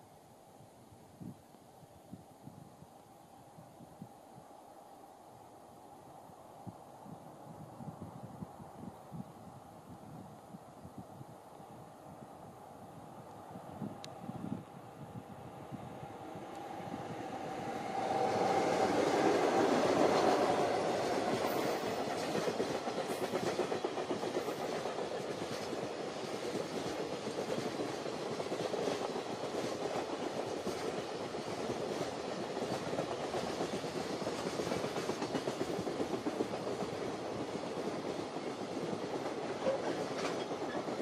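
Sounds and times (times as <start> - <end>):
electric locomotive passing: 12.9 - 41.0.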